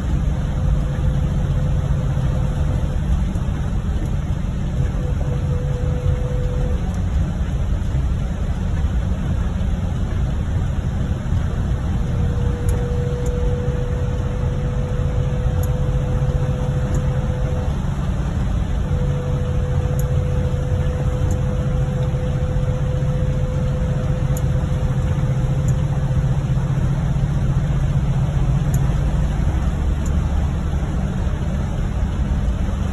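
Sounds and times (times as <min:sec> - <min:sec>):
low engine and road drone: 0:00.0 - 0:32.9
thin steady hum: 0:12.0 - 0:32.9.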